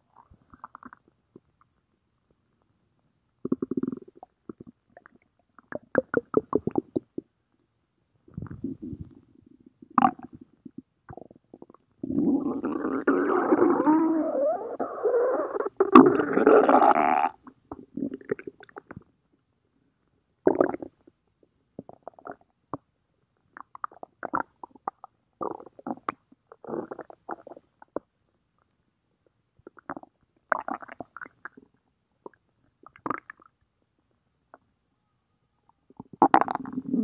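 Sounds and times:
stomach growling: 0.2s - 1.6s, 3.4s - 7.3s, 8.3s - 19.1s, 35.9s - 37.0s.

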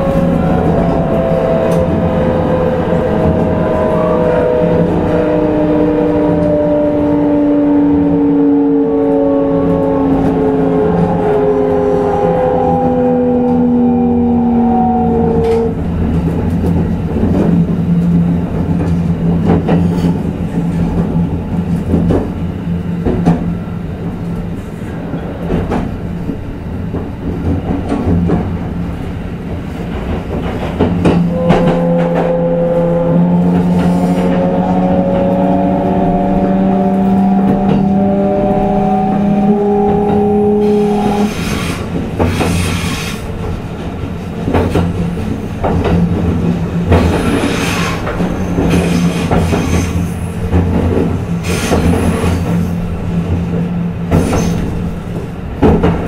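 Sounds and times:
train wheel noise: 0.0s - 56.0s
rail-joint clicks: 15.4s - 35.5s, 36.1s - 56.0s.

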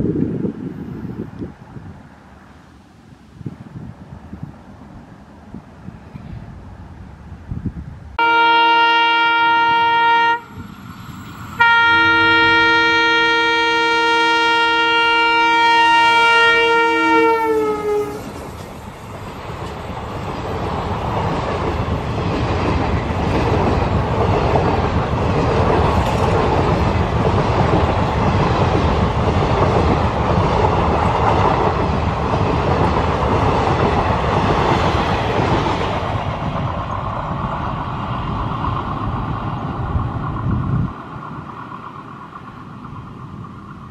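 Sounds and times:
train wheels roaring on rail: 0.0s - 43.9s
locomotive horn blasts: 8.2s - 10.5s, 11.6s - 18.3s
clatter over rail joints: 18.3s - 37.9s.

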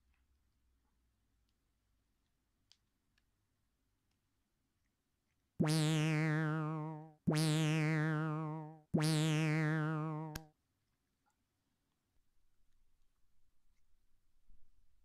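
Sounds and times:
warbling synthesizer notes: 5.6s - 10.4s.

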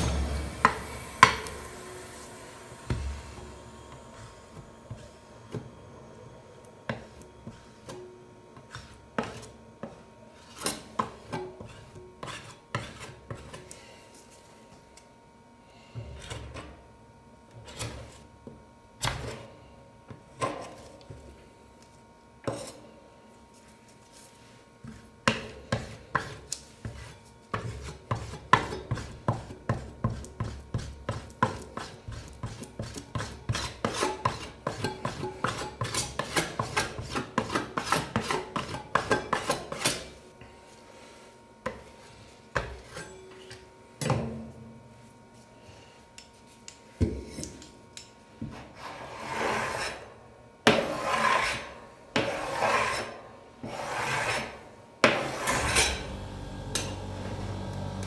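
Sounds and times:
metal spatula scraping ice cream: 10.3s - 13.6s, 25.9s - 40.2s, 48.8s - 56.2s.

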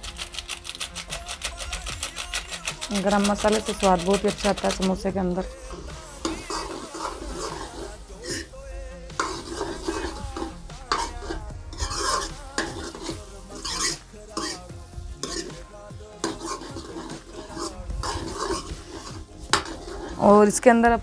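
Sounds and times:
ladle scraping metal pan: 0.0s - 20.6s
light frying sizzle: 3.0s - 8.6s, 9.2s - 20.8s.

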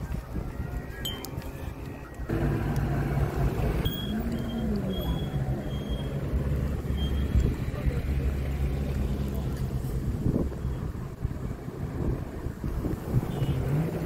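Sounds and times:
wind rumbling on microphone: 0.0s - 2.3s, 6.2s - 14.0s
glass clinking: 1.0s - 1.3s.

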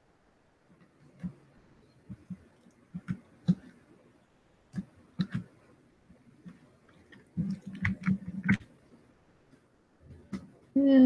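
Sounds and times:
computer mouse and keyboard clicks: 4.7s - 5.5s.

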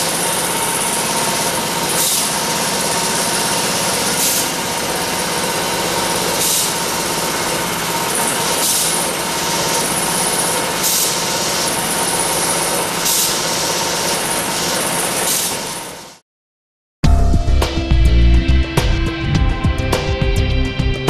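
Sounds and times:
tufting machine running: 0.0s - 16.0s
pneumatic hiss: 1.2s - 16.2s.

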